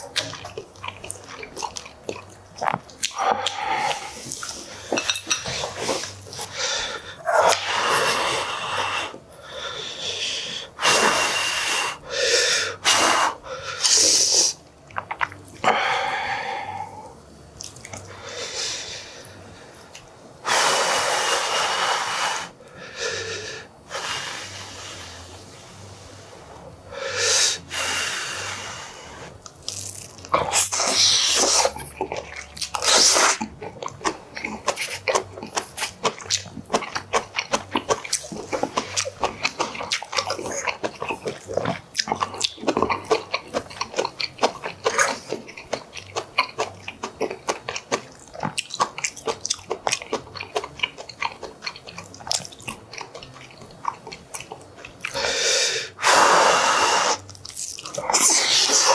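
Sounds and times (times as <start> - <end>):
wet chewing with smacking: 0.0 - 7.7, 13.9 - 15.7, 17.3 - 18.2, 29.4 - 55.2, 57.1 - 58.9
slurping noodles: 30.4 - 32.0, 32.7 - 33.5, 55.1 - 57.3, 58.0 - 58.9.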